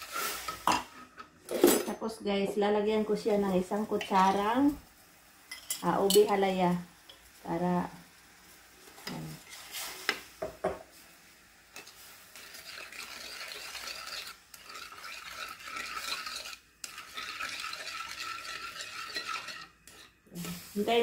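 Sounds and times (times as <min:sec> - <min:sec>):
spoon stirring and scraping wok: 0:00.0 - 0:01.6, 0:03.7 - 0:04.6, 0:08.4 - 0:21.0
hot syrup hissing: 0:07.4 - 0:21.0.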